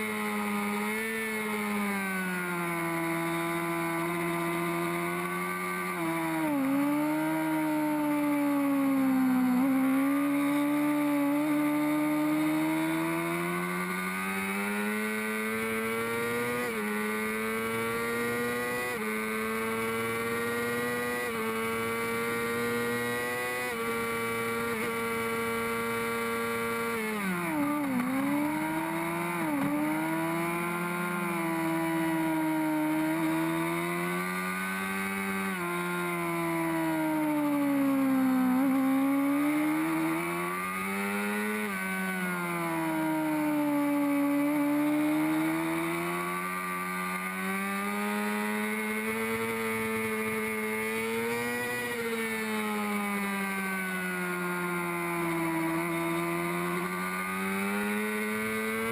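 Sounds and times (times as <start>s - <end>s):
motorcycle engine revving: 0.0s - 58.9s.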